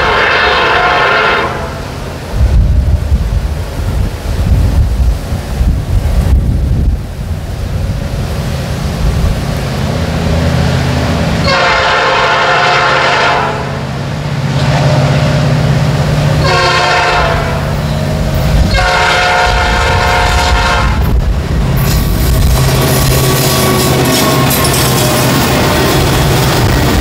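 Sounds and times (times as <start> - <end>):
locomotive air horn blasts: 0.0 - 1.9, 11.4 - 13.8, 16.4 - 21.2
locomotive engine drone: 0.0 - 27.0.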